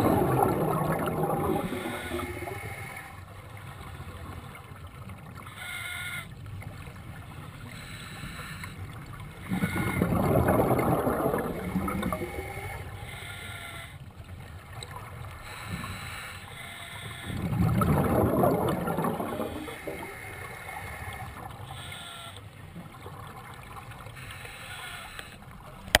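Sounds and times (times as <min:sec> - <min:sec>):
bubbles gurgling: 0:00.0 - 0:03.2, 0:09.0 - 0:13.0, 0:17.2 - 0:21.8
diver breathing through regulator: 0:01.4 - 0:03.0, 0:15.4 - 0:18.2.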